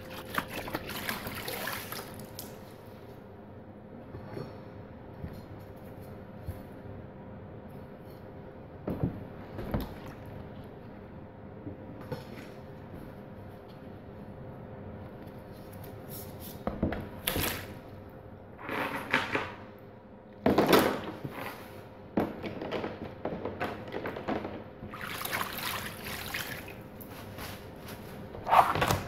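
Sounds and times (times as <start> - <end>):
water splashing in a plastic tub: 0.0 - 2.6, 24.9 - 26.9.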